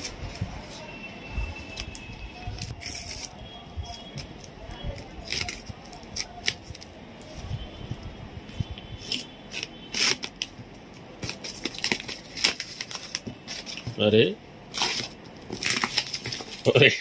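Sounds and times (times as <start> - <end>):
plastic wrap crinkling: 1.6 - 7.6, 9.0 - 14.0, 14.7 - 16.9
packing tape tearing: 1.7 - 6.8, 9.0 - 10.5, 11.2 - 13.9, 14.7 - 16.7.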